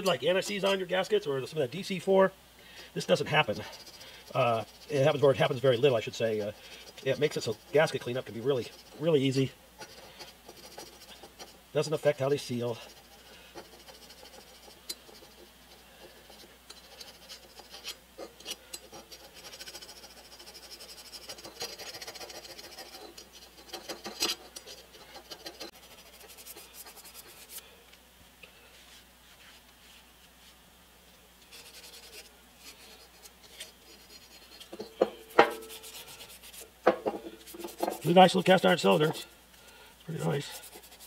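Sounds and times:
metal scraper scraping: 3.0s - 27.6s, 31.5s - 39.2s.

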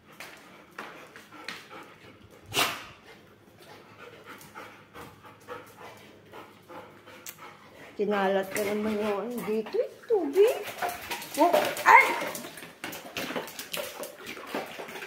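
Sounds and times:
small dog panting: 3.0s - 10.6s.

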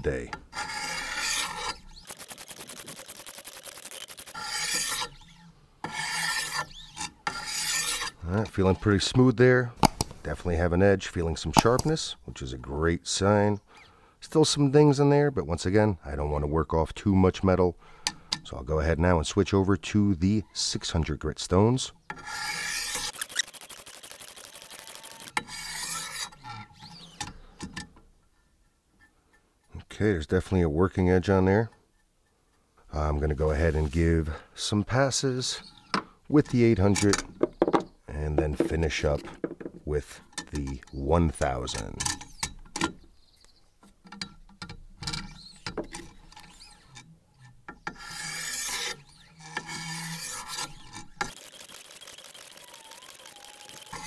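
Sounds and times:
sharpening stones rasping on steel: 0.6s - 1.8s, 2.6s - 8.2s, 22.2s - 23.5s, 25.3s - 27.1s, 48.0s - 51.0s.

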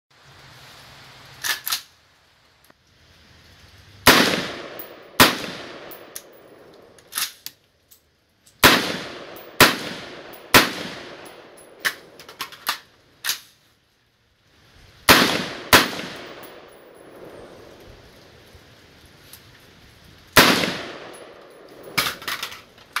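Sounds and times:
metallic clicks of rifle handling: 1.4s - 1.9s, 4.7s - 8.6s, 10.2s - 13.6s, 20.4s - 23.0s
rifle shots echoing: 4.1s - 7.0s, 8.6s - 12.4s, 15.1s - 17.8s, 20.4s - 22.7s.

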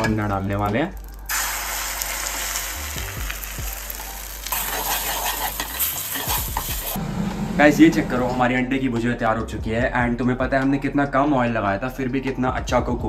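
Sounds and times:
eggs sizzling in frying pan: 0.0s - 7.0s
metal spoon stirring: 4.0s - 7.0s.

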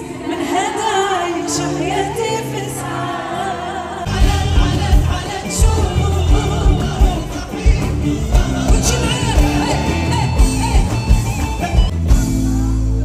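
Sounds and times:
woman singing into microphone: 0.0s - 4.6s
live band playing: 0.0s - 13.0s.

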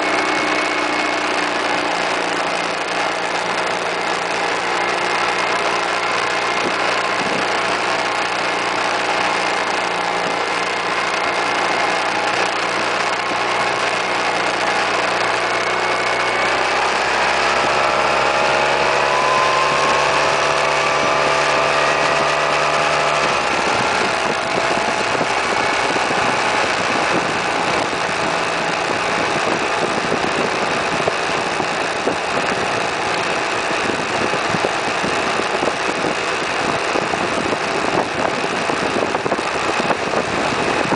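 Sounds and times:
scooter engine accelerating: 0.0s - 40.9s
wind and road noise: 0.0s - 40.9s.

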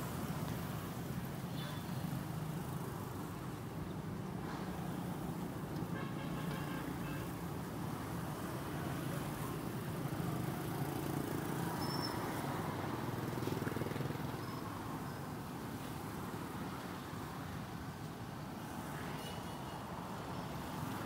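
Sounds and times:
motor traffic hum: 0.0s - 21.0s.

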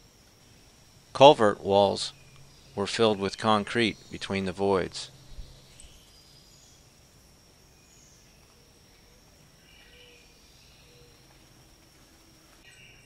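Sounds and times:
high-pitched insect drone: 0.0s - 13.0s
soft bird chirps: 5.0s - 7.0s, 7.8s - 11.3s.

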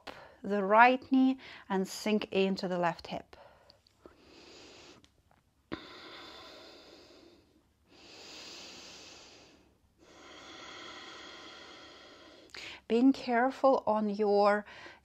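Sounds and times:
woman breathing softly: 1.4s - 1.7s, 3.4s - 5.1s, 5.7s - 12.9s, 14.6s - 15.0s.

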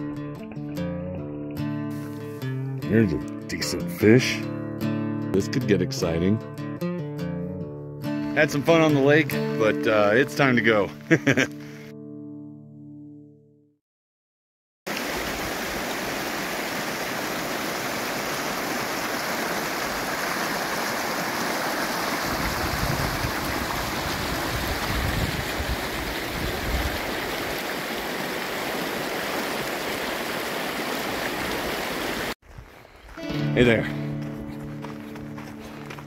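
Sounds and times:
mountain stream rushing over stones: 14.9s - 32.4s.

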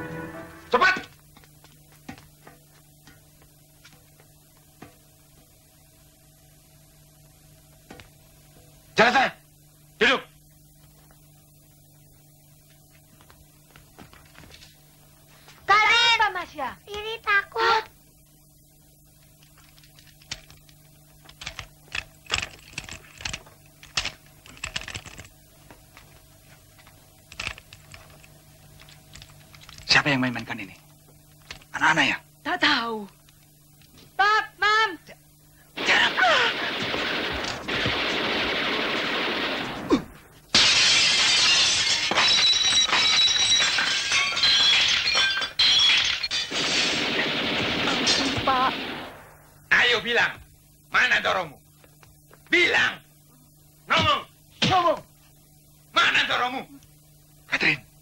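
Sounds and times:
low steady hum: 0.0s - 58.0s
glasses shattering: 40.5s - 47.0s.

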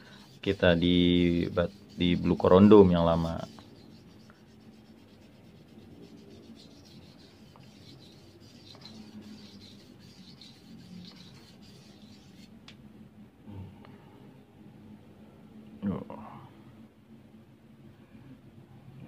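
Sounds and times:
knife rubbing on whetstone: 0.1s - 12.5s.

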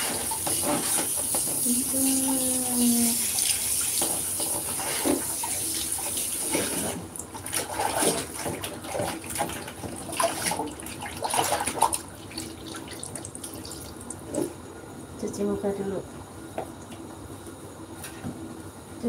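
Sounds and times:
shower sprayer hissing into water: 0.0s - 7.0s.

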